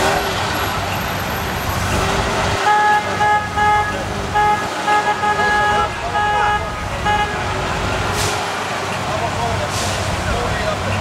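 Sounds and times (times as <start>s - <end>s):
car engine rumbling: 0.0s - 11.0s
car horn short toots: 2.6s - 7.5s.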